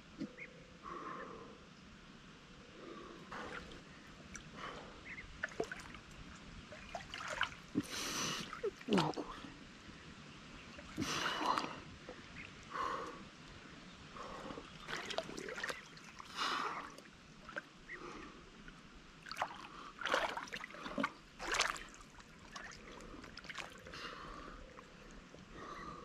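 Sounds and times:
river water splashing: 3.3 - 9.6, 14.2 - 18.1, 19.1 - 25.3.

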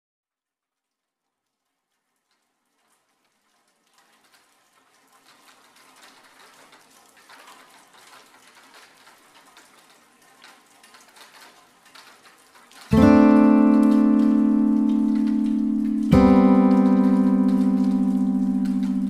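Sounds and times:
rain-like pattering and crackle: 0.6 - 19.0.

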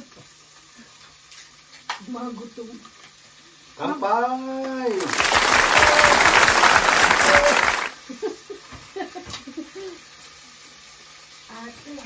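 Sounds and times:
applause: 4.7 - 8.0.

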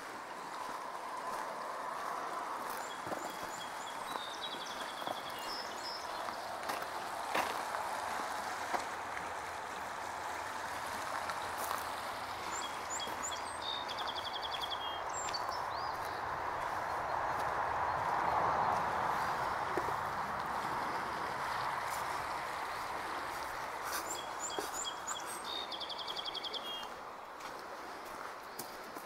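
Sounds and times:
footsteps on gravel and leaves: 0.0 - 29.0
stream water flowing: 0.0 - 29.0
birds chirping and trilling: 2.7 - 6.8, 12.4 - 19.3, 22.8 - 27.0.

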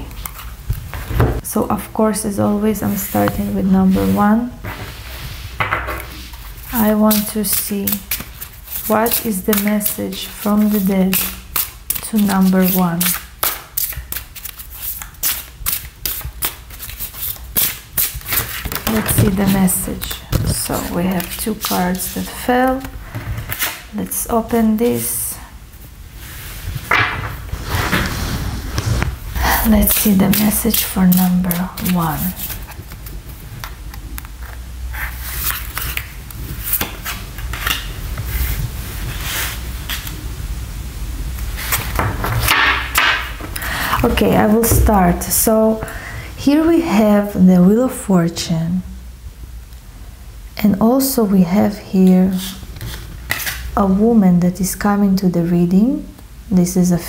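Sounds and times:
cards being shuffled: 6.6 - 23.8, 27.6 - 40.1, 52.8 - 53.6.

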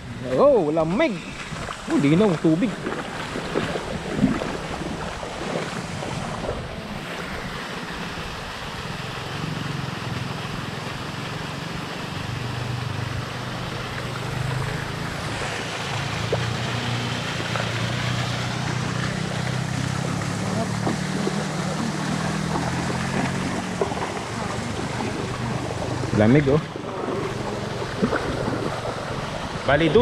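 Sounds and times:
river water rushing and splashing: 0.0 - 30.0
wind rumble on microphone: 1.2 - 10.8, 17.7 - 30.0.

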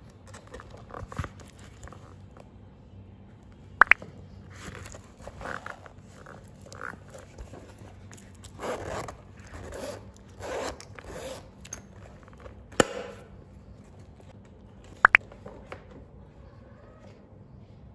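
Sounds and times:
zipper being pulled: 8.4 - 11.6.

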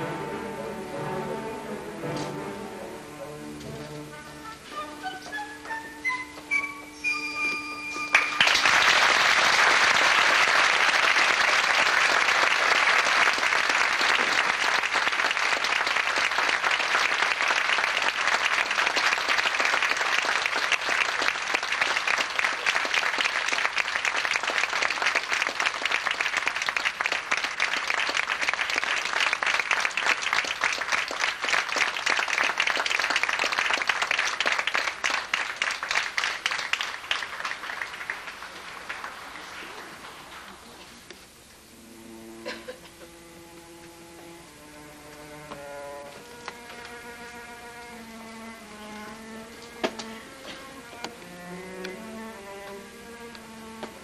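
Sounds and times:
orchestra playing: 0.0 - 9.1, 41.6 - 54.0
audience applauding: 8.1 - 40.8.

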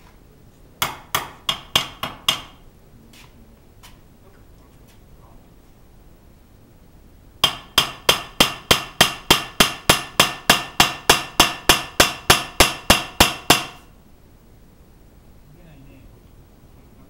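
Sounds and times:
hammer blows on metal: 7.4 - 13.9.

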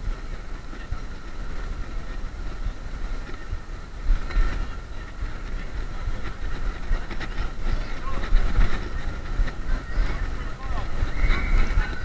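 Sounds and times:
faint steady whine: 0.0 - 12.0
wind buffeting microphone: 0.0 - 12.0.

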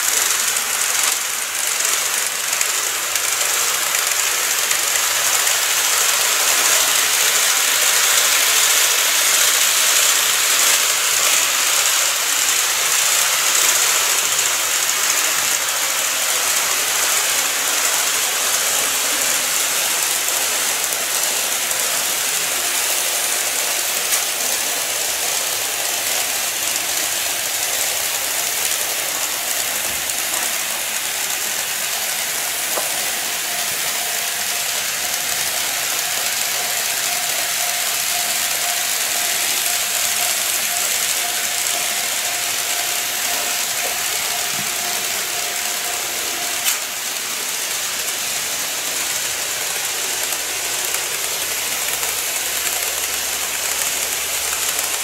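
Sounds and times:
model train motor whirring: 0.0 - 55.0
wheels rail noise: 0.0 - 55.0.

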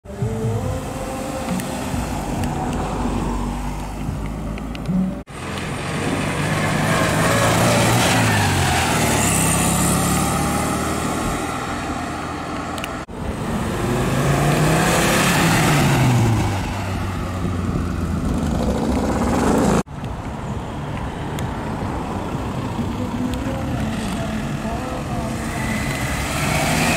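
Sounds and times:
car engine revving: 0.1 - 19.9, 22.4 - 26.9
car passing by: 5.3 - 19.9, 25.4 - 26.9.

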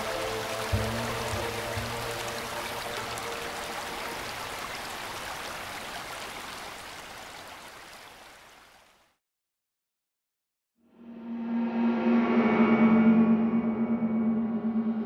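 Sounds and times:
soft background music: 0.0 - 4.5
rain hissing: 0.0 - 8.7.

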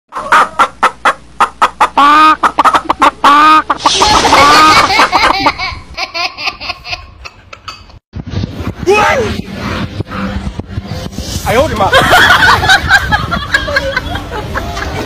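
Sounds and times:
chickens clucking: 0.1 - 5.8
baby laughing: 3.8 - 8.0.

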